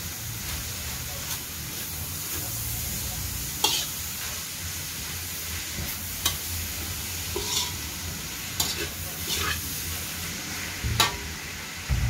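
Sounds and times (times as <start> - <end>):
greens sizzling in a wok: 0.0 - 12.0
spatula striking metal pan: 10.8 - 11.3.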